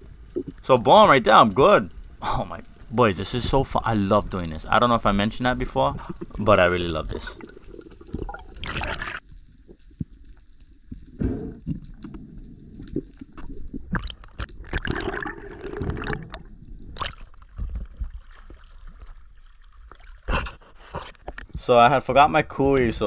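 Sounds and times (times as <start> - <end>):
underwater gurgling and bubbling: 0.0 - 0.6, 5.0 - 10.2, 10.8 - 20.4
water splash: 7.1 - 9.2.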